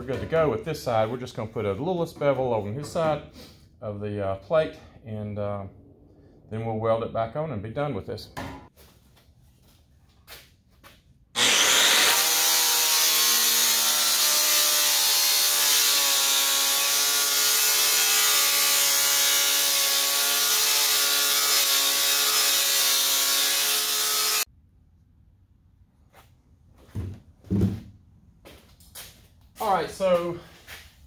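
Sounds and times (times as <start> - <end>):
angle grinder grinding steel: 11.4 - 24.5.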